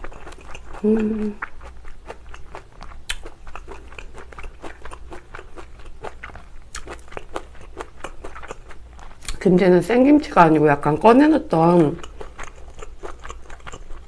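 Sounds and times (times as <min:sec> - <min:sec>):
close chewing: 0:00.0 - 0:09.4, 0:11.5 - 0:14.0
wet mouth clicks: 0:02.1 - 0:05.4.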